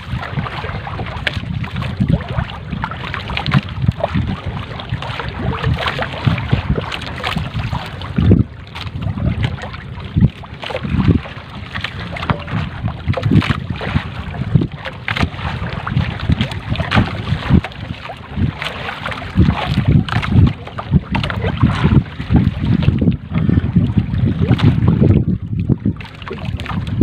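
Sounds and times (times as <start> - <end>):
water slapping against boat: 0.0 - 27.0
wind buffeting microphone: 0.0 - 27.0
low thumps: 11.9 - 13.8.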